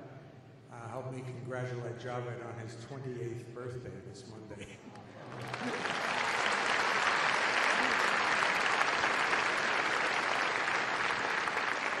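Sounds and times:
audience clapping: 5.1s - 12.0s.

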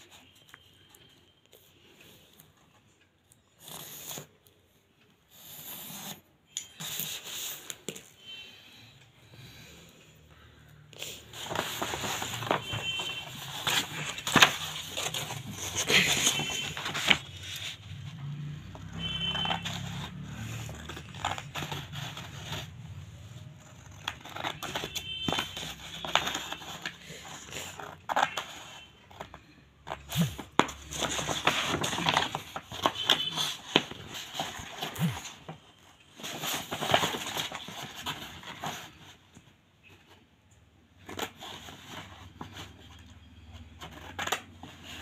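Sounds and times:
scissors cutting paper: 3.5s - 4.5s, 11.0s - 29.3s, 29.9s - 35.5s
paper crackling and rustling: 11.0s - 40.2s, 40.9s - 45.0s.

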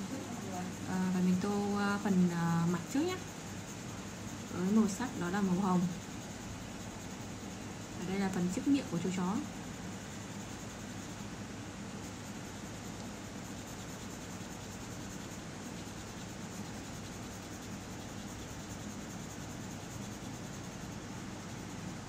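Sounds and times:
background hiss: 0.0s - 22.0s
pencil scratching on paper: 10.3s - 22.0s.

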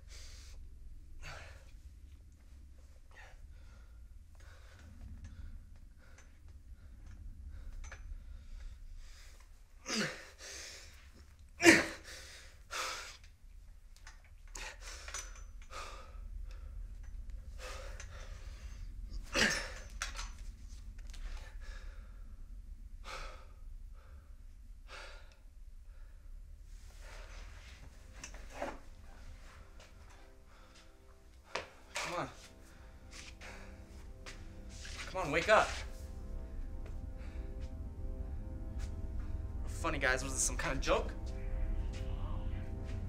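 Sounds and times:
low steady hum: 0.0s - 43.0s
person breathing hard: 3.1s - 11.3s, 12.0s - 13.4s, 14.5s - 20.4s, 21.2s - 27.9s.

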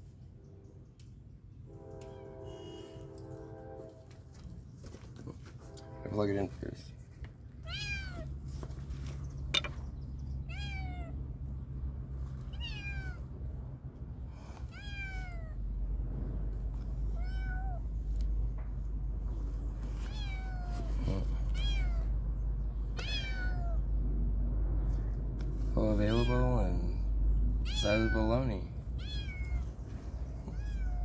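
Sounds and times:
steady low rumble: 6.7s - 31.0s
cat meowing: 7.6s - 8.3s, 10.4s - 11.2s, 12.5s - 13.3s, 14.6s - 15.6s, 17.1s - 17.9s, 19.9s - 22.1s, 22.9s - 23.9s, 26.0s - 26.5s, 27.6s - 28.3s, 28.9s - 29.8s, 30.4s - 31.0s.

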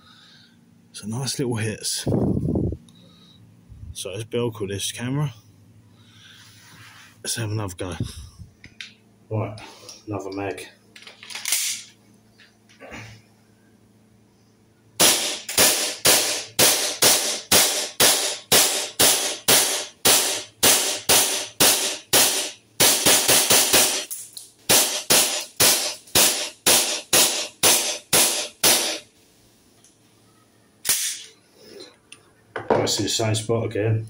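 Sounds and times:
airsoft pistol shots: 15.0s - 24.1s, 24.7s - 29.0s.

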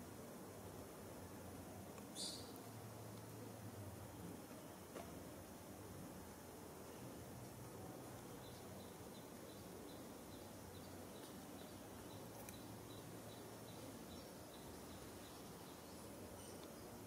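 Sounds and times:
faint high chirp: 2.1s - 2.7s, 8.4s - 17.0s.

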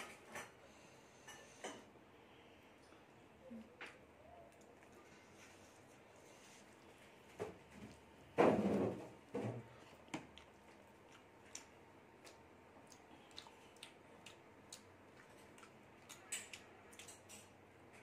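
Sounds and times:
closed-mouth chewing: 9.8s - 17.6s.

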